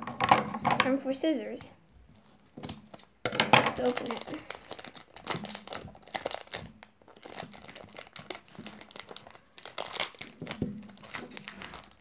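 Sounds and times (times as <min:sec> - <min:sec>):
plastic wrap crinkling: 0:02.1 - 0:12.0.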